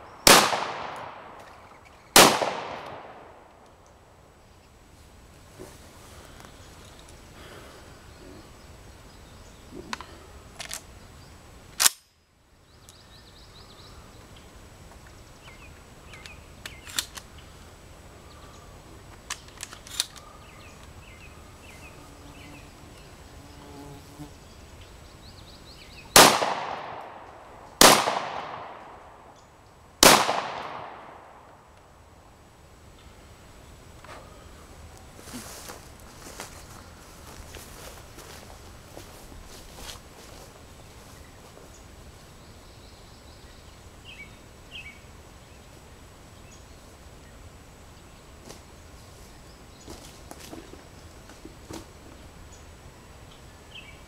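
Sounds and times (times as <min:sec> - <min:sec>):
sharp crack: 0:00.0 - 0:04.0, 0:26.1 - 0:29.4, 0:30.0 - 0:31.9
shotgun shots echoing: 0:00.2 - 0:01.5, 0:02.1 - 0:03.5, 0:26.2 - 0:29.3, 0:30.0 - 0:31.5.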